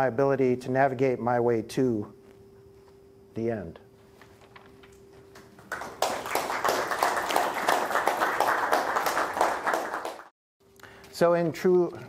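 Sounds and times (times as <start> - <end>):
faint steady hum: 0.0 - 9.7
audience clapping: 5.3 - 10.3.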